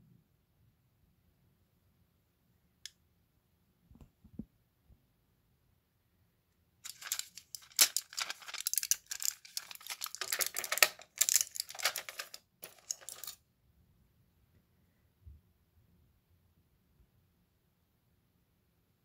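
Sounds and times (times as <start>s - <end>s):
blister pack crinkling and crackling: 6.9s - 13.4s.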